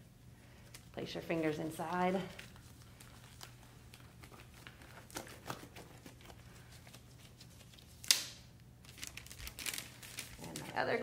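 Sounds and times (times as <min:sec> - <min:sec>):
surgical glove rustling: 0:00.0 - 0:10.8
glove snapping: 0:08.0 - 0:08.5.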